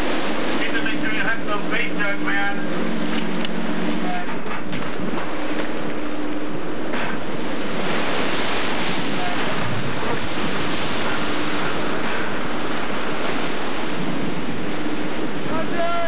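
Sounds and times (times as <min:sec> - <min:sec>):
waves crashing over boat deck: 0:00.0 - 0:16.0
wind buffeting microphone: 0:00.0 - 0:16.0.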